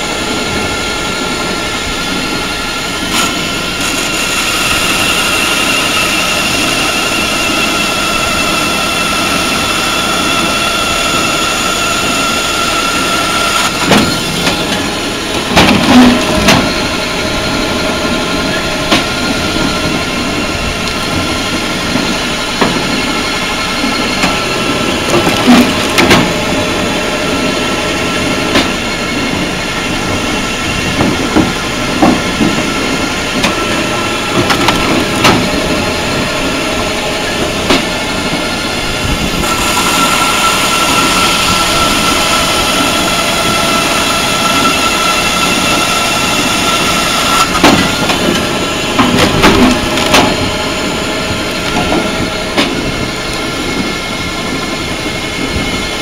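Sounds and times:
firewood processing machine running: 0.0s - 56.0s
sharp knocks and clatters: 15.4s - 16.7s.

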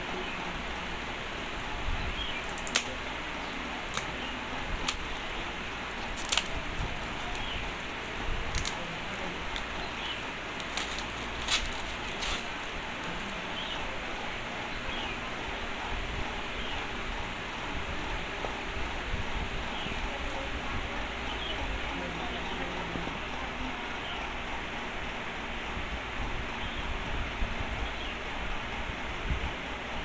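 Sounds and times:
steady background hiss: 0.0s - 30.0s
scissors snipping: 2.4s - 3.0s, 3.9s - 4.2s, 6.1s - 7.4s, 10.6s - 12.5s
plastic shrink-wrap crinkling: 6.0s - 7.4s, 8.4s - 9.7s, 10.6s - 13.4s.

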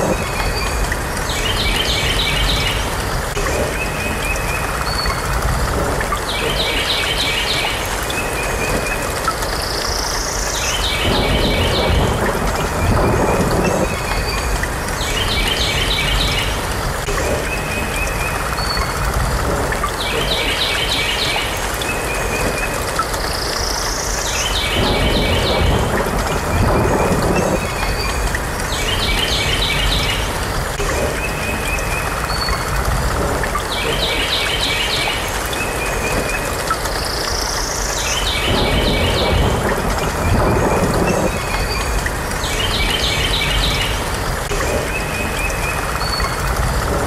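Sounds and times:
steady low rumble: 11.0s - 14.9s, 24.8s - 28.6s, 38.5s - 42.3s
birds chirping: 33.5s - 47.0s.

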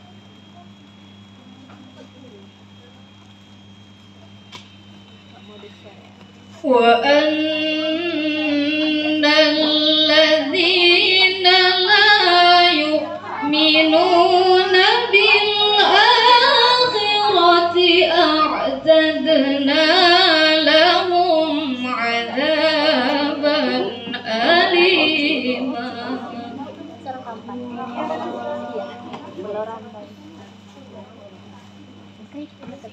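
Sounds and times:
steady low hum: 0.0s - 32.9s
woman singing unaccompanied: 6.6s - 29.3s.

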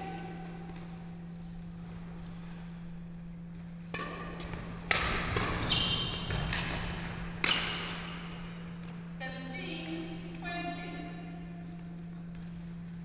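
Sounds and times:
low electrical hum: 0.0s - 13.0s
rackets striking shuttlecock: 3.9s - 8.5s
shoes squeaking on court floor: 5.4s - 8.6s.

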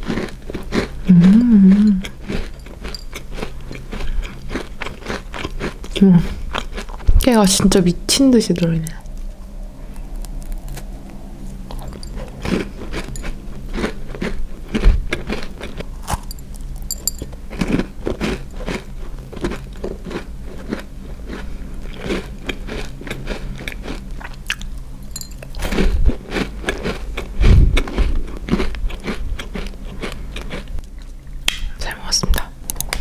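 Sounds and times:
crunching and chewing cookie: 0.0s - 7.8s, 8.6s - 31.5s
dull low thumps: 27.4s - 28.2s.

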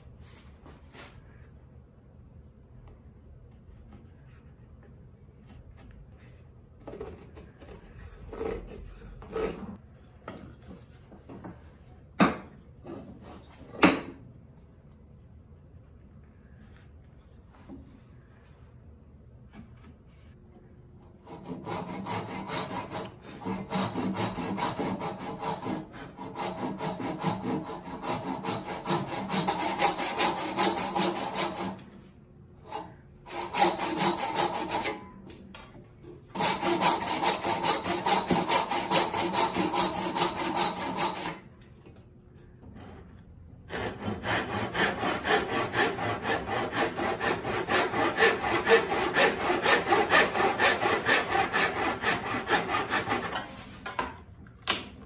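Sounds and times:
hand saw cutting wood: 21.2s - 32.0s, 32.6s - 35.1s, 36.3s - 41.5s, 43.7s - 53.8s.

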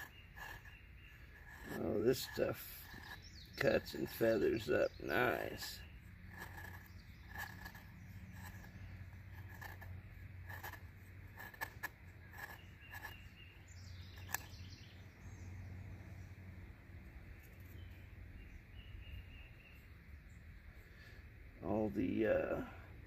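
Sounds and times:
knife scraping wood stick: 0.0s - 14.7s.

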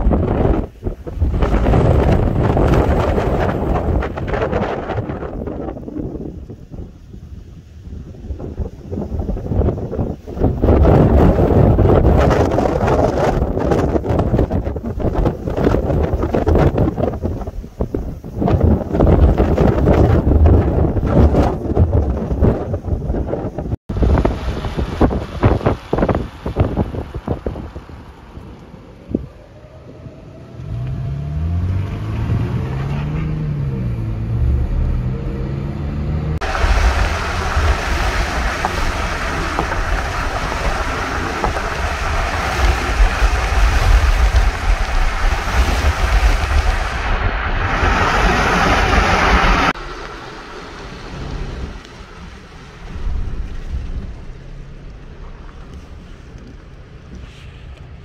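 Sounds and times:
road noise: 0.0s - 58.0s
wind and tyre noise: 0.0s - 58.0s
car engine accelerating: 29.1s - 57.2s.

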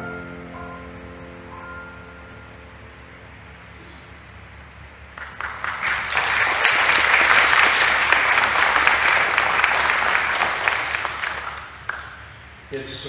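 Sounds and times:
congregation applauding: 5.1s - 12.5s.

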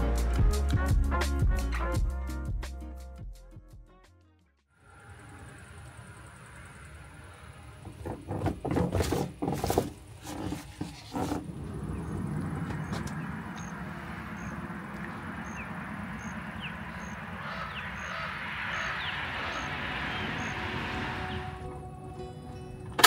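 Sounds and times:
distant road traffic hum: 4.8s - 23.0s
rustling and knocks: 7.8s - 11.6s
birds chirping: 11.4s - 22.9s.

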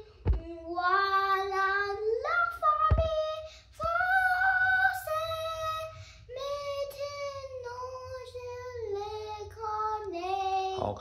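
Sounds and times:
boy singing unaccompanied: 0.0s - 11.0s.

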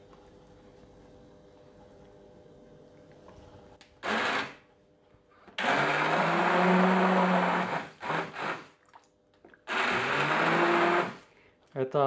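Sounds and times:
hand blender running: 4.0s - 4.6s, 5.6s - 8.7s, 9.7s - 11.3s.

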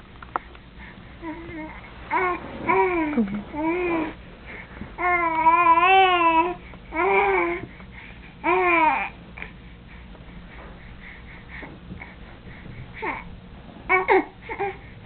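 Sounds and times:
infant vocalizing: 1.2s - 4.2s.

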